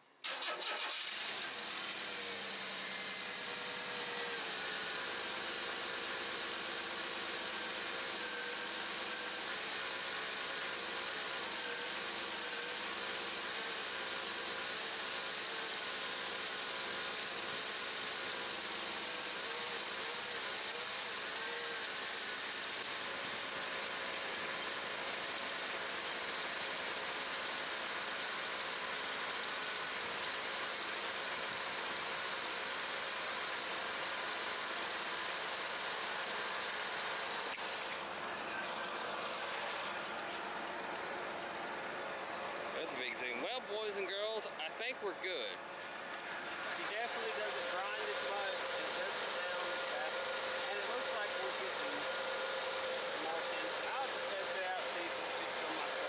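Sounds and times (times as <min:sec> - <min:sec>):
belt grinding and whining: 0:00.4 - 0:56.0
car engine idling: 0:37.2 - 0:56.0.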